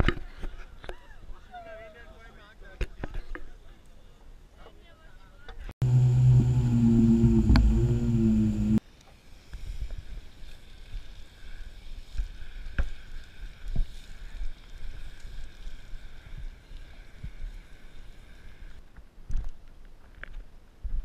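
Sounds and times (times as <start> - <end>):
wind on microphone: 5.8 - 8.8.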